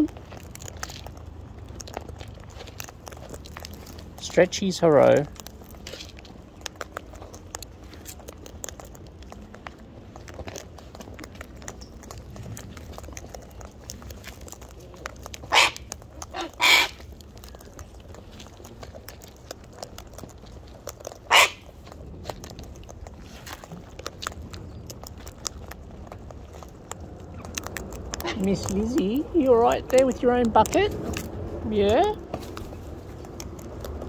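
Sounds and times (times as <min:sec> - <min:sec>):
beaks cracking seed: 0:05.0 - 0:31.5
loud bird squawks: 0:15.5 - 0:17.0, 0:21.3 - 0:21.6.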